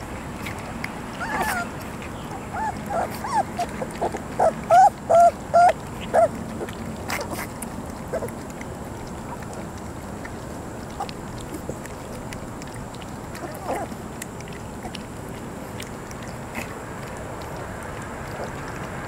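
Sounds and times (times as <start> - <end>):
puppies lapping food: 0.0 - 19.0
puppies whining: 0.5 - 8.4, 13.4 - 15.0.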